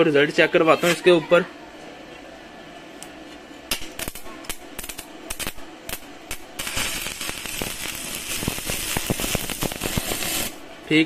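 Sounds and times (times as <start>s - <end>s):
welding arc popping and crackling: 3.0s - 11.0s.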